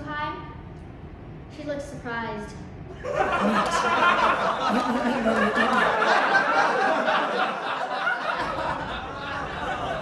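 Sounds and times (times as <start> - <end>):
audience laughing: 2.9 - 10.0.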